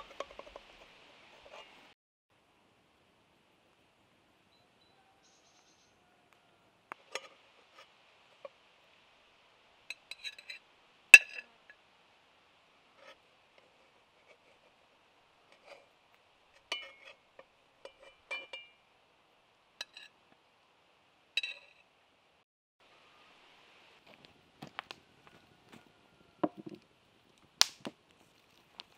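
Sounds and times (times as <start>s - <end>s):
metal spatula scraping a pan: 0.0s - 2.0s, 9.9s - 10.6s, 11.2s - 11.5s, 12.9s - 14.8s, 15.4s - 15.9s, 16.5s - 18.8s, 19.8s - 20.2s
spatula clinking on a plate: 9.9s - 10.6s, 11.2s - 11.5s, 16.6s - 18.8s, 19.8s - 20.1s, 21.4s - 21.8s.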